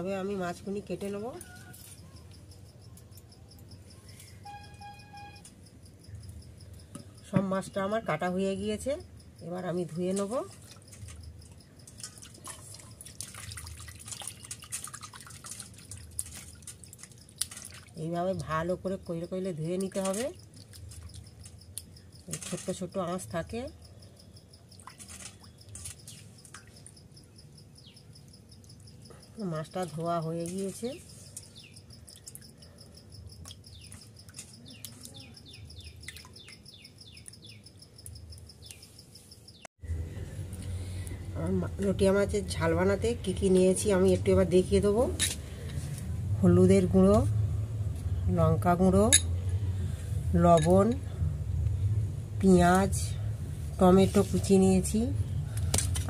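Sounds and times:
insect trill: 0:00.0 - 0:39.7
water splashing in a steel bowl: 0:10.0 - 0:23.5, 0:24.7 - 0:27.0, 0:33.4 - 0:36.7
small birds chirping: 0:29.8 - 0:39.7.

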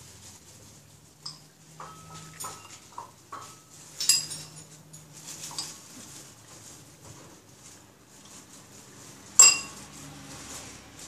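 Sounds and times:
dishes clinking on counter: 0:01.2 - 0:05.8, 0:09.4 - 0:09.9.

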